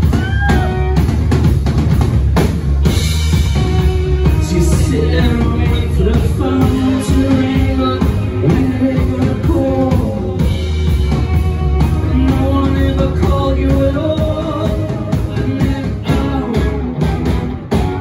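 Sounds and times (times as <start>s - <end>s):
bass guitar: 0.0s - 18.0s
drum kit: 0.0s - 18.0s
electric guitars: 0.0s - 18.0s
man singing: 4.2s - 10.9s, 11.9s - 17.2s.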